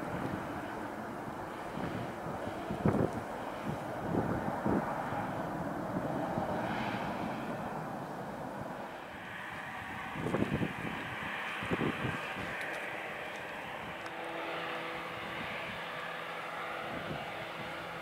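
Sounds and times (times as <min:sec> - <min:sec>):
jet engines roaring at takeoff: 0:00.0 - 0:18.0.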